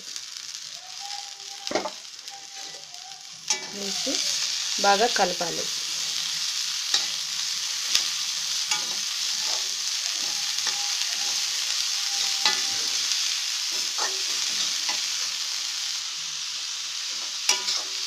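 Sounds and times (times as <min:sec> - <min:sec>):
food sizzling in oil: 0:00.0 - 0:18.0
metal spatula scraping a pan: 0:03.5 - 0:04.6, 0:05.9 - 0:15.5, 0:17.1 - 0:18.0.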